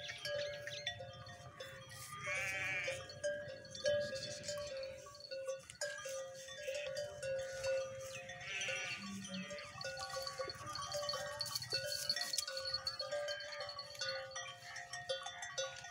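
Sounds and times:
animal bleating: 0:01.9 - 0:03.3, 0:06.5 - 0:07.2, 0:08.3 - 0:13.3.

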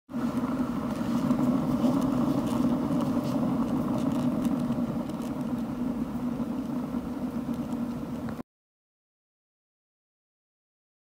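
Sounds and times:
exercise wheel spinning on bearing: 0:00.1 - 0:08.4.

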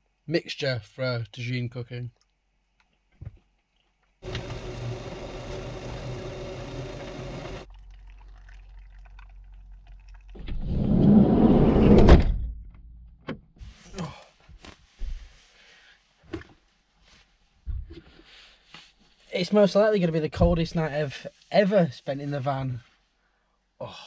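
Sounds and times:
hot water pouring: 0:04.2 - 0:10.5.

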